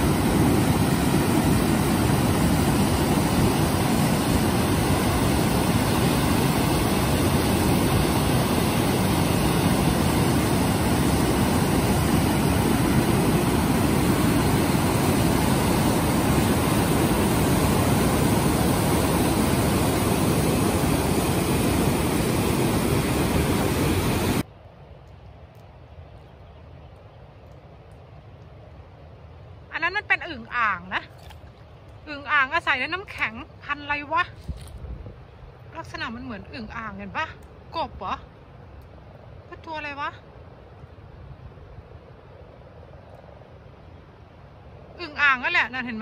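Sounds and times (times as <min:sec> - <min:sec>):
faint outdoor ambience: 0:00.0 - 0:46.0.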